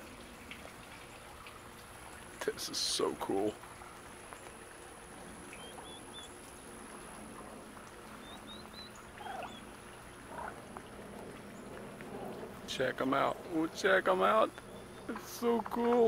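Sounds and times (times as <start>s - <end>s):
soft low turkey calls: 5.4s - 12.6s
turkey poults peeping: 5.6s - 6.4s, 8.2s - 10.6s.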